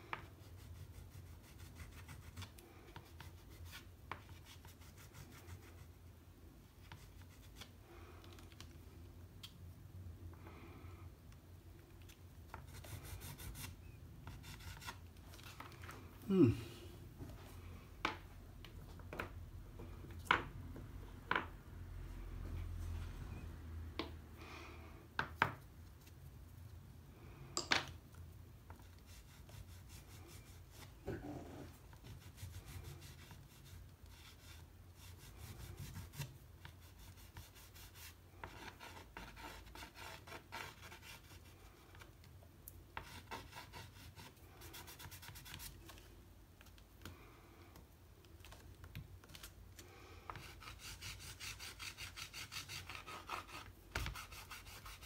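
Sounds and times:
pastel scraping on paper: 50.3s - 55.0s.

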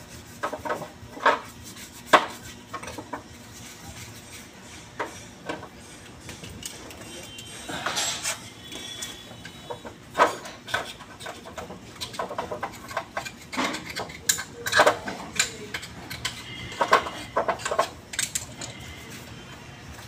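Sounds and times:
metal parts clinking in a tray: 6.4s - 18.9s.

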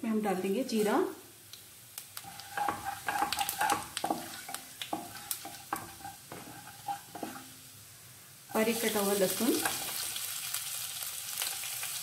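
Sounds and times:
seeds sizzling in hot oil: 0.0s - 12.0s
wooden spatula stirring: 2.2s - 7.6s.

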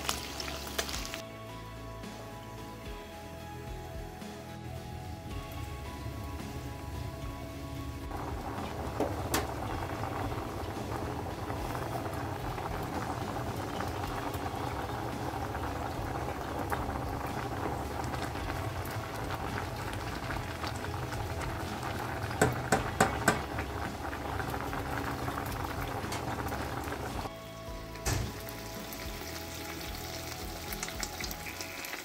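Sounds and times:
water bubbling in pot: 5.5s - 27.3s
spoon knocking on metal pot: 22.4s - 23.6s.

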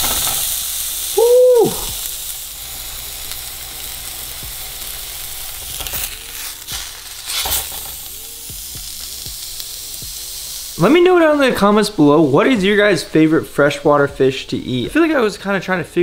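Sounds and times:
fish fillet sizzling in a pan: 0.0s - 12.4s.

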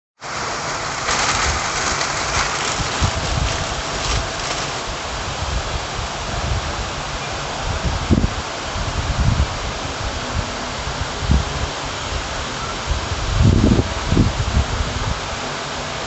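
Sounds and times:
low rumbles: 0.2s - 5.8s
heavy rain: 0.2s - 16.0s.

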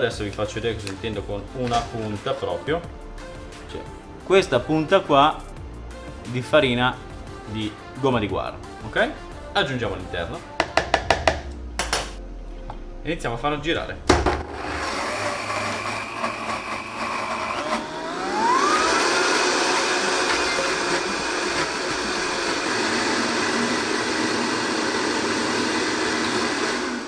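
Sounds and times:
blender motor whining: 14.4s - 27.0s.

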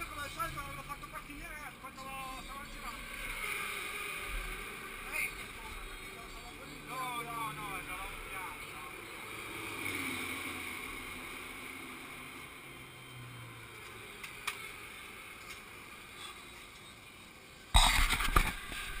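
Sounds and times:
hand rubbing and knocking camera: 17.8s - 18.8s.

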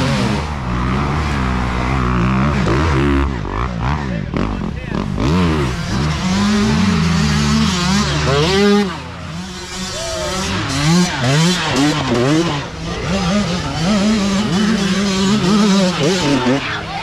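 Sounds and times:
dirt bike engines revving: 0.0s - 17.0s.

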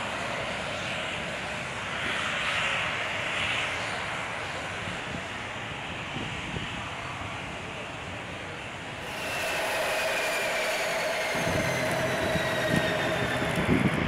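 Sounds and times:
turboprop engines whining: 8.6s - 14.0s.

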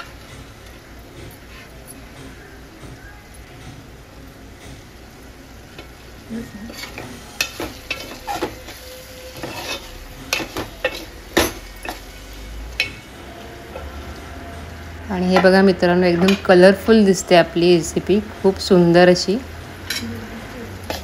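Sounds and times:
faint sizzle of cooking: 0.0s - 21.0s
metal ladle scraping pot: 6.6s - 12.1s.

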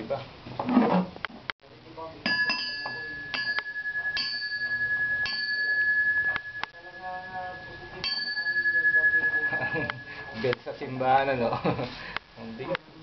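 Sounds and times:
brass pestle tapping brass ware: 2.3s - 6.8s.

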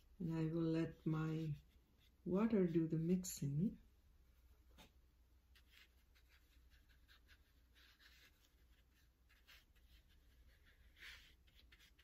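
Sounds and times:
brush scratching on paper: 0.5s - 3.3s, 5.5s - 12.0s.

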